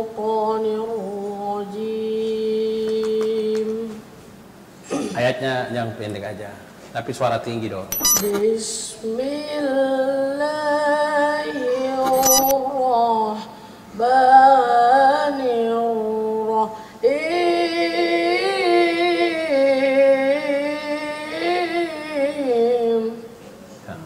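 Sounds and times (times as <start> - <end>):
boy reciting in melodic singing: 0.0 - 4.0, 8.4 - 23.4.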